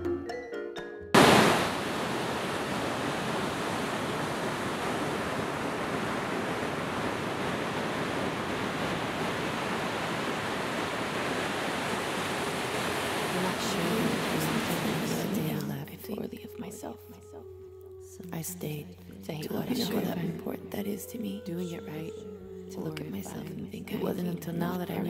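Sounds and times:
vibraphone notes: 0.0s - 1.2s
ocean waves breaking on beach: 1.2s - 15.6s.

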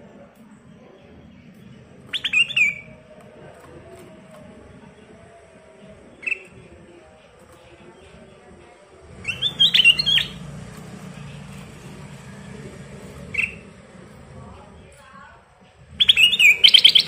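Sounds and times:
low background rumble: 0.0s - 17.0s
bird chirping: 0.6s - 17.0s
bird rapid gliding notes: 1.0s - 17.0s.

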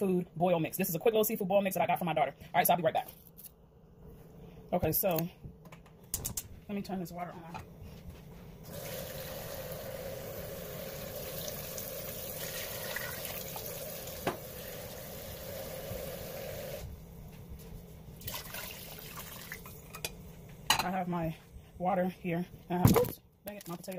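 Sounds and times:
faucet running water: 8.6s - 16.9s, 18.2s - 20.0s.

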